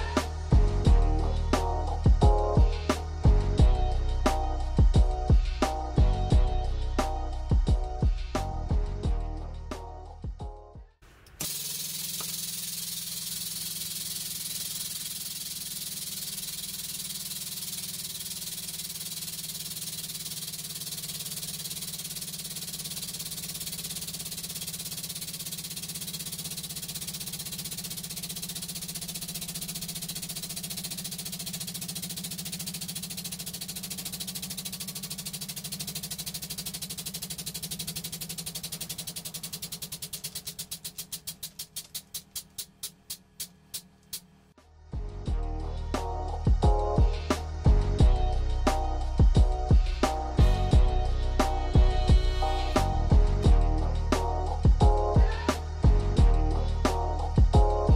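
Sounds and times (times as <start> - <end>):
high hiss: 11.0 - 43.5
hydraulic pump motor hum: 11.1 - 44.3.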